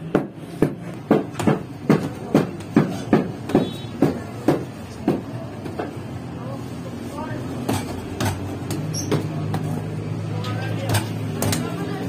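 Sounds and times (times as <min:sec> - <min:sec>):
wooden tool striking dough: 0:00.0 - 0:06.0.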